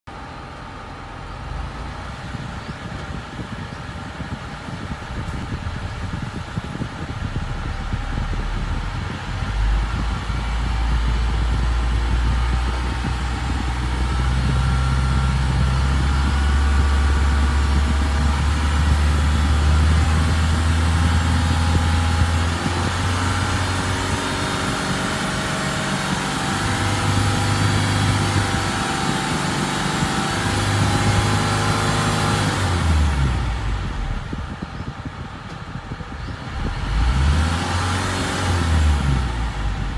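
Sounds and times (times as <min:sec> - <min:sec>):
diesel engine revving: 0:00.1 - 0:34.6, 0:35.7 - 0:39.9.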